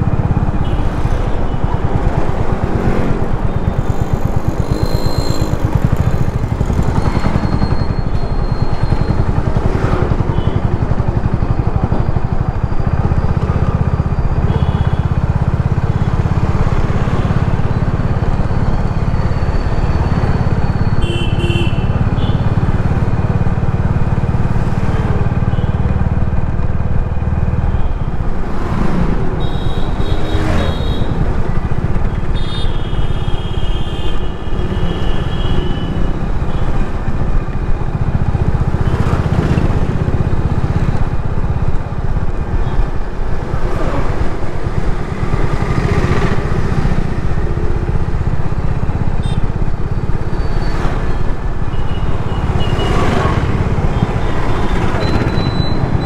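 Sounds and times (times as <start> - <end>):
low rumble of vehicle and road: 0.0 - 56.0
vehicles passing: 0.0 - 56.0
car horn honks: 21.0 - 22.4, 49.2 - 49.4.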